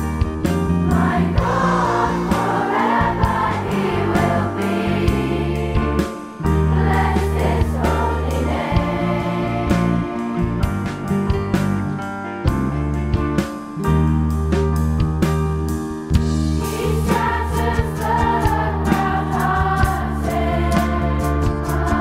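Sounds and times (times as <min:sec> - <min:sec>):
voices singing worship song: 0:00.8 - 0:10.4, 0:16.6 - 0:22.0.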